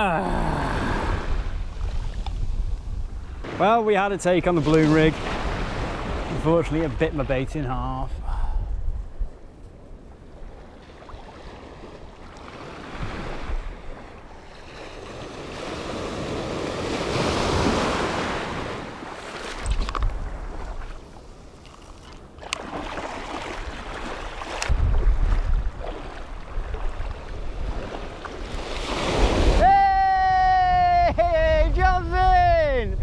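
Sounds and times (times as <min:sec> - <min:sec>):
wind buffeting microphone: 0:00.6 - 0:03.6, 0:04.4 - 0:14.4, 0:23.1 - 0:33.0
small waves washing in surf: 0:03.3 - 0:07.5, 0:10.2 - 0:29.8.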